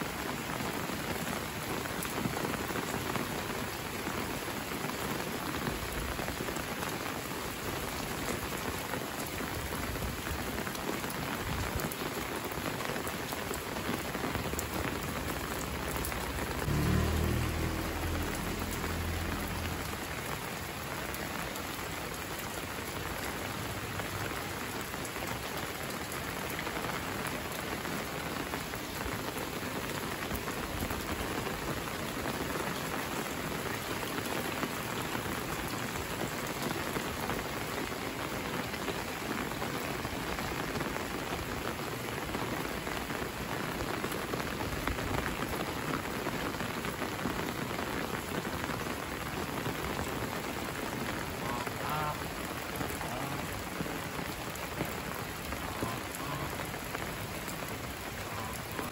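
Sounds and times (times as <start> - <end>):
rain falling on pavement: 0.0 - 58.9
low rumble: 15.7 - 20.3.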